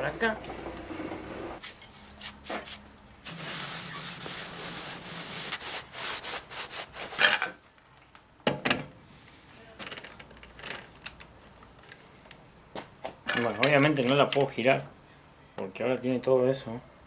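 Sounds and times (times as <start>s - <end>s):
steel parts scraping: 1.6s - 4.2s.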